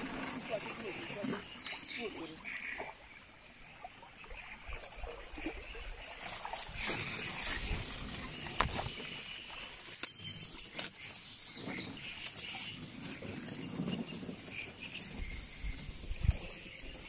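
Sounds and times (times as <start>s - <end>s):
water sloshing: 0.0s - 15.7s
reeds rustling against boat: 0.0s - 17.0s
reeds snapping: 6.8s - 11.2s.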